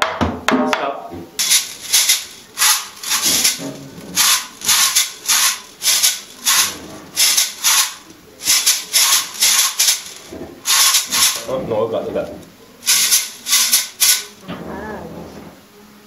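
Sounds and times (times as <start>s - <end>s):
hand shaker rattling: 1.4s - 11.5s, 12.8s - 14.4s.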